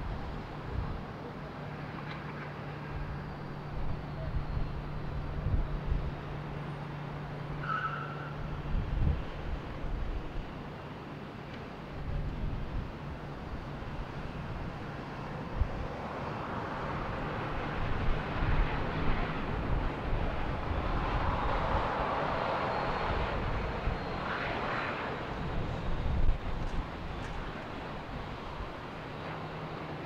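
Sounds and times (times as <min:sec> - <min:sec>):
faint high whine: 0:00.0 - 0:30.0
jet engine roar: 0:00.0 - 0:30.0.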